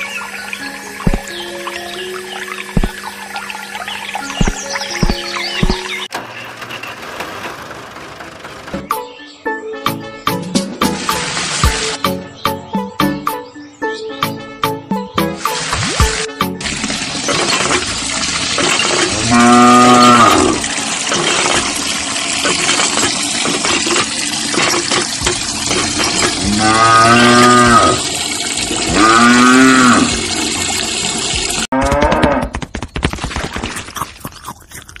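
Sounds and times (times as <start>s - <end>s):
cow mooing: 19.1s - 20.6s, 26.4s - 28.0s, 28.9s - 30.2s.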